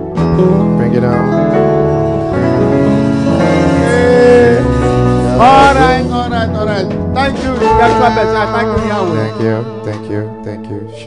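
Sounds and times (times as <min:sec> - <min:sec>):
instrumental accompaniment: 0:00.0 - 0:11.0
man singing into a microphone: 0:07.6 - 0:11.0.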